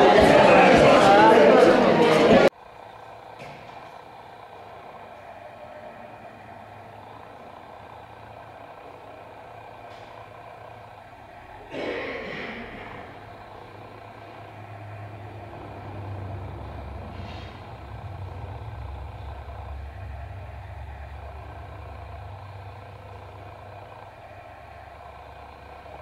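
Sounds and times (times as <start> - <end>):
heavy vehicle rumbling: 0.0 - 26.0.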